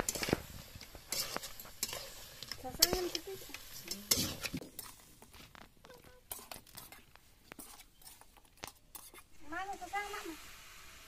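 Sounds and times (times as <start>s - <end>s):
ladle clicking and scraping pan: 0.0s - 9.3s
chicken frying in a pan: 0.0s - 11.0s.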